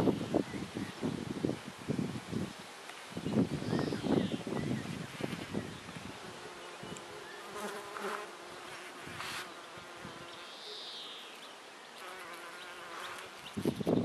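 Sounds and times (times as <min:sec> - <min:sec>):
bees buzzing: 0:05.2 - 0:10.6.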